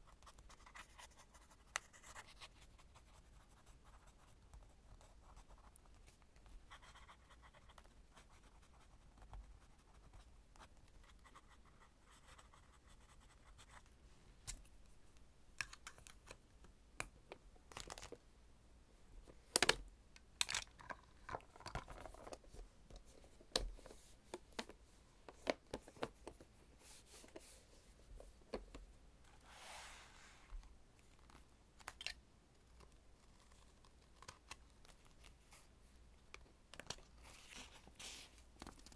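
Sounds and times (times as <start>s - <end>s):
fountain pen scratching on paper: 0.1s - 4.3s.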